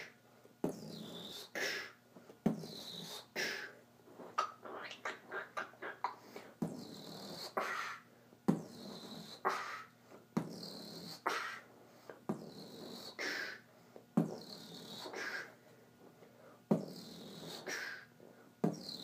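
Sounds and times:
person beatboxing: 0:00.6 - 0:01.9, 0:02.5 - 0:03.6, 0:04.4 - 0:11.6, 0:12.3 - 0:13.6, 0:14.2 - 0:15.5, 0:16.7 - 0:19.0.

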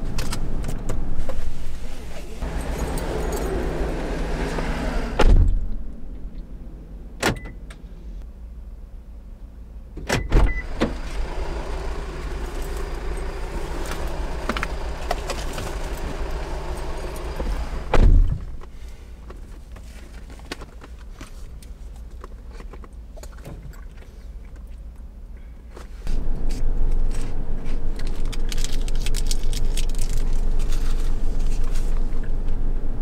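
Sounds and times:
car door shutting thump: 0:05.1 - 0:05.6, 0:17.8 - 0:18.5.

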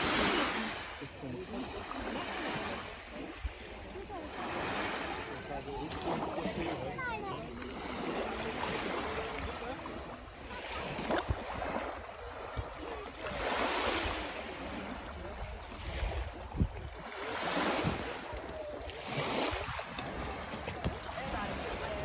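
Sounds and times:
small waves washing onto shore: 0:00.0 - 0:22.0
wind rumbling on microphone: 0:15.2 - 0:17.0.

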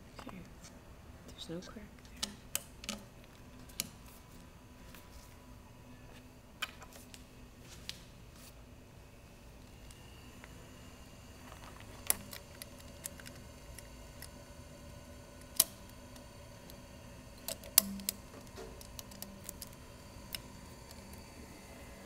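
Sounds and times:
faint steady hum: 0:00.0 - 0:22.0
sharp clicks and knocks of handling: 0:02.0 - 0:04.0.

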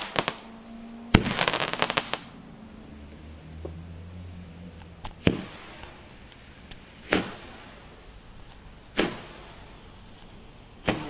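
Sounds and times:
roman candle firework pops: 0:00.0 - 0:00.5, 0:01.1 - 0:02.3, 0:05.1 - 0:07.8, 0:08.5 - 0:11.0.

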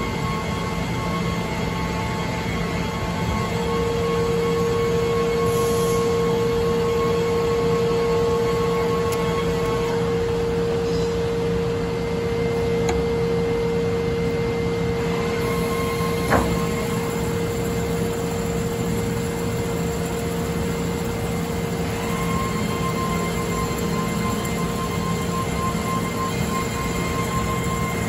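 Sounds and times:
metal-cutting band saw humming: 0:14.8 - 0:28.0
coolant flowing: 0:15.4 - 0:28.0.

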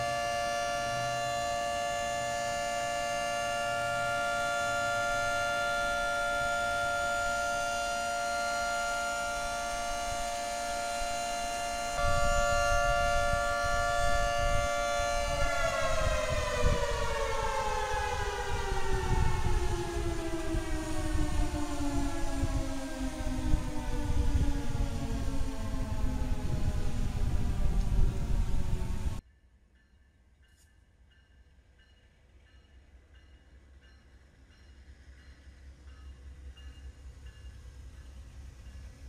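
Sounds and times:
warning siren wailing: 0:00.0 - 0:29.2.

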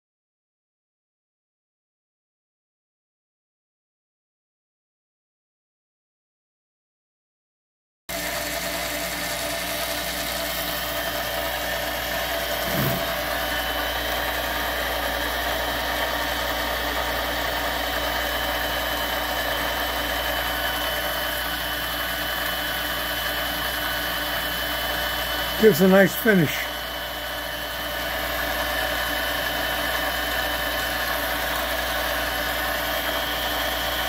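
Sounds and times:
lathe motor and gears whirring: 0:08.1 - 0:34.0.

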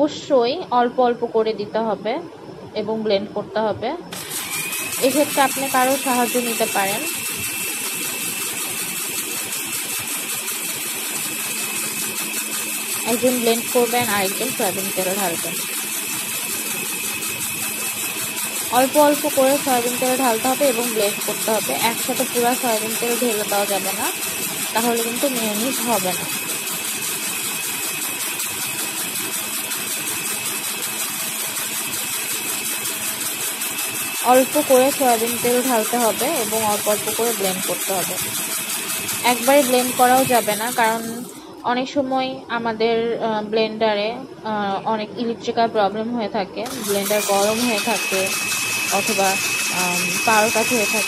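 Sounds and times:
blender motor running: 0:04.1 - 0:41.6, 0:46.6 - 0:51.0.

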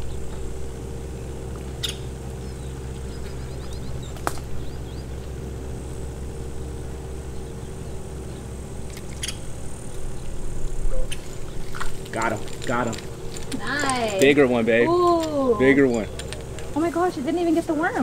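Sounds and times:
low hum: 0:00.0 - 0:18.0
bird chirping: 0:01.1 - 0:05.5, 0:06.4 - 0:12.1.

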